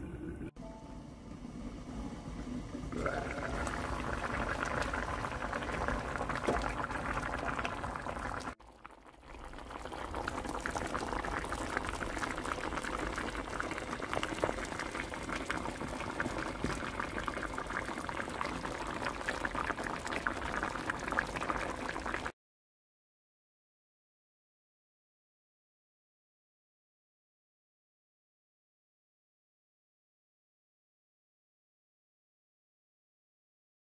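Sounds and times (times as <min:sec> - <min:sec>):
stew boiling and bubbling: 0:00.0 - 0:22.3.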